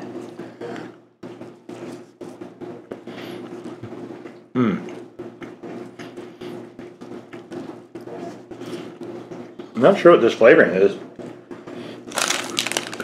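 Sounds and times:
fingers crumbling pastry: 0:12.1 - 0:13.0.

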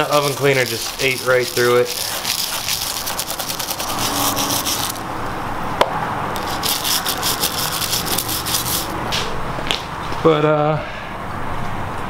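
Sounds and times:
stiff brush scrubbing metal: 0:00.0 - 0:05.2, 0:06.4 - 0:09.0.

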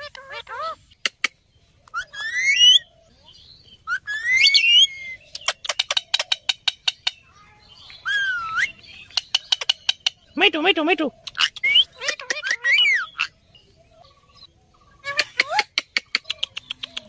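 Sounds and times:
parakeets whistling: 0:01.9 - 0:02.9, 0:03.8 - 0:07.3, 0:08.0 - 0:10.2, 0:11.3 - 0:13.4.

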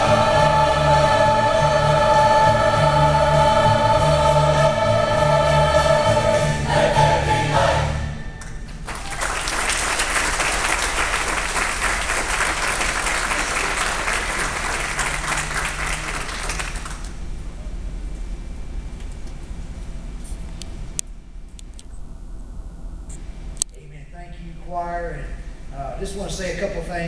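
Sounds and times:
choir singing a chord: 0:00.0 - 0:08.5
congregation applauding: 0:08.4 - 0:17.2.

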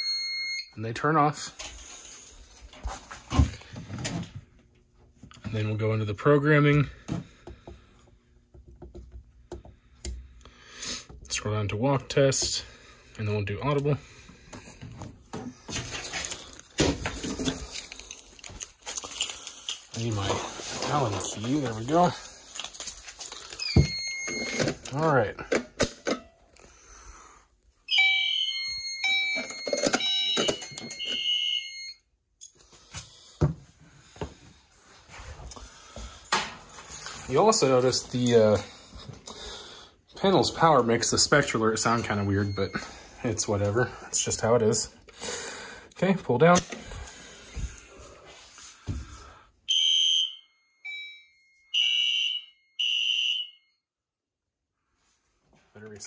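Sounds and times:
ringing chime tones: 0:00.0 - 0:01.1, 0:23.6 - 0:24.7, 0:27.9 - 0:32.0, 0:41.8 - 0:43.0, 0:50.5 - 0:52.9
fire alarm horn blasts: 0:27.9 - 0:32.0, 0:49.7 - 0:53.8
shrill alarm horn blasts: 0:49.7 - 0:50.5, 0:51.7 - 0:53.7.

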